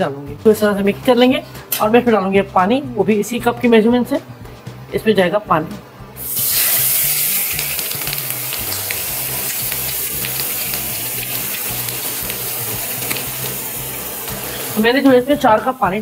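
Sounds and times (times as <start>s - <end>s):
water sizzling in hot fat: 6.2s - 16.0s.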